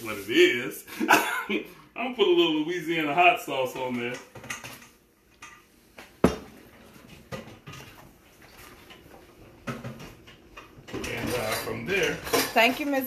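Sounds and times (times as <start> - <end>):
bottle and dishes knocking: 6.2 - 6.5.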